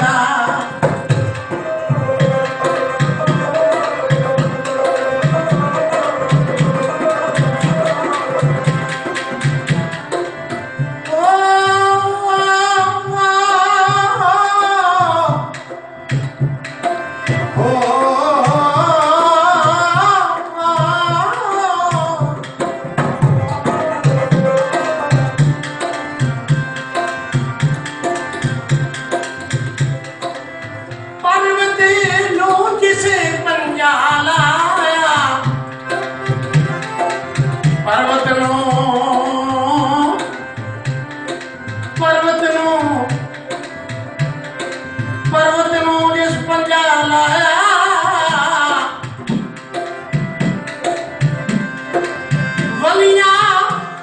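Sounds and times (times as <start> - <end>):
person singing long held lines: 0.0 - 9.0, 11.0 - 15.6, 17.6 - 22.6, 37.8 - 40.6, 42.0 - 43.4, 52.8 - 54.0
harmonium: 0.0 - 54.0
tabla rhythm: 0.0 - 54.0.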